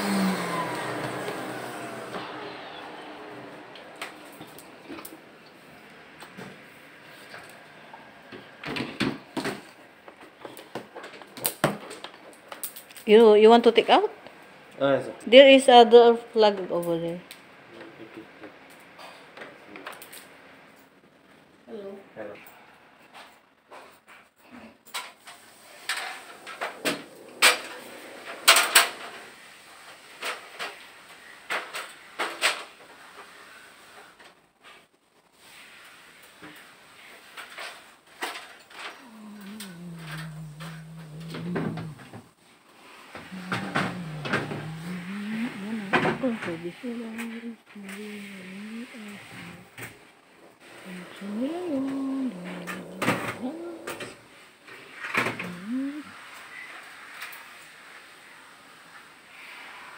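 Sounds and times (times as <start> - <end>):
vacuum motor winding down: 0.0 - 5.7, 39.0 - 42.3, 43.3 - 47.3.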